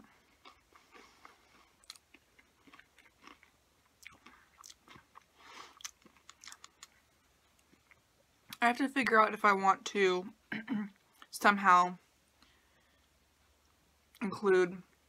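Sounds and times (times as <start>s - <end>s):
faint chewing: 0.0s - 8.6s.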